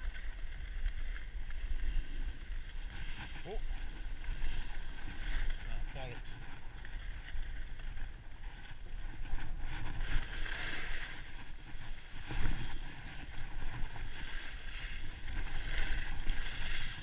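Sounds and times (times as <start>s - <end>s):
skis sliding over snow: 0.0s - 17.0s
wind rumbling on microphone: 0.0s - 17.0s.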